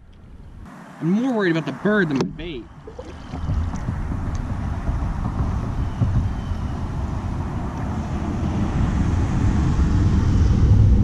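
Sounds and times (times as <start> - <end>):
low rumble: 2.2 - 11.0.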